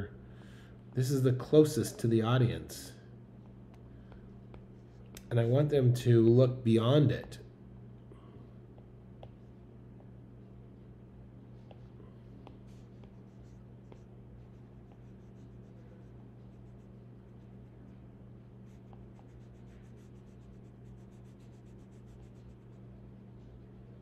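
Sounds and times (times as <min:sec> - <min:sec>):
faint low hum: 0:00.0 - 0:24.0.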